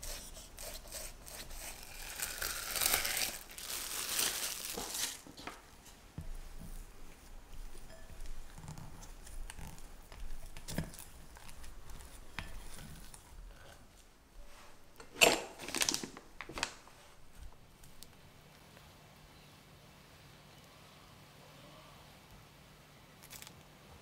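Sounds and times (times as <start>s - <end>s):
spatula scraping sticky cream: 0.0s - 3.5s, 5.8s - 13.8s
plastic bag crinkling: 1.4s - 5.6s, 15.2s - 18.1s.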